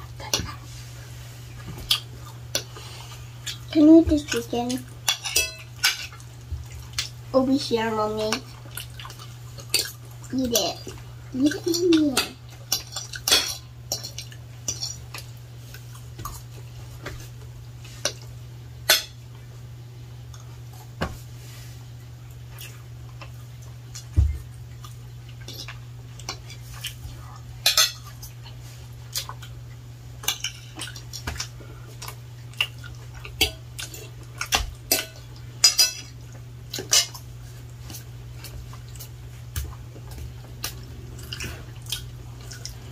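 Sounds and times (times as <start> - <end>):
steady low hum: 0.0 - 42.9
forks clinking on plates: 5.1 - 6.2, 11.5 - 15.2, 27.6 - 28.1, 33.4 - 36.1.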